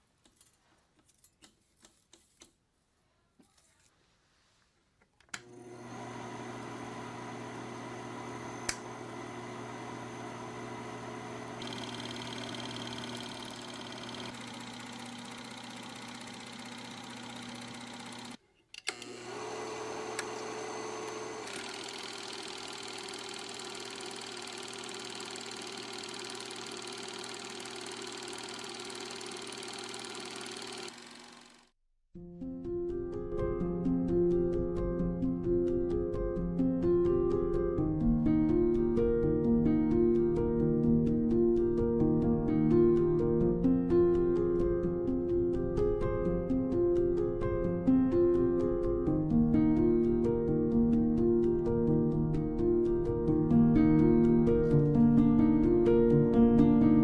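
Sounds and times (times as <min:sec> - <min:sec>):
film projector running: 0:05.4 - 0:31.8.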